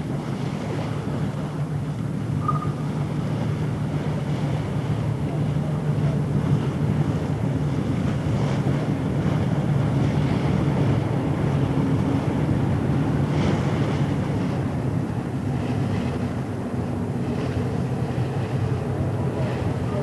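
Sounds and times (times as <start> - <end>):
boat engine drone: 0.0 - 20.0
wind and water rushing: 0.0 - 20.0.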